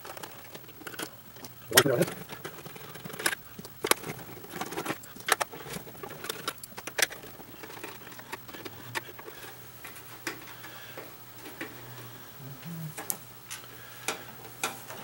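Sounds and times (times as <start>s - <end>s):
hands handling plastic parts: 0.0s - 11.8s.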